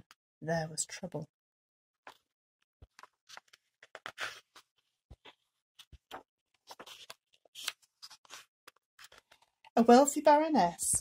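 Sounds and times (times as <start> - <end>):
book pages rustling: 2.0 - 9.7.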